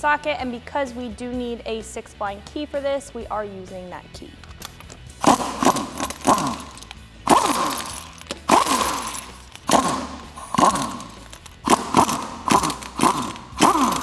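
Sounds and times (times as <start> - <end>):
impact wrench whining bursts: 5.1 - 14.0.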